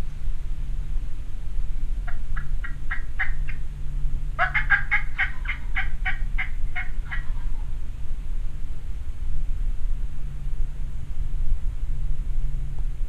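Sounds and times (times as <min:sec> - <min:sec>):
low rumble: 0:00.0 - 0:13.0
turkey yelping: 0:02.1 - 0:03.6, 0:04.4 - 0:07.7.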